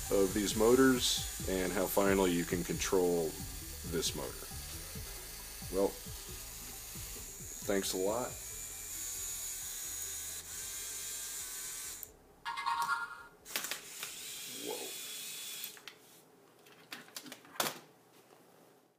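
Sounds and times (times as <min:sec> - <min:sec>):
electric motors and gears whirring: 0:00.0 - 0:12.1, 0:13.5 - 0:15.9.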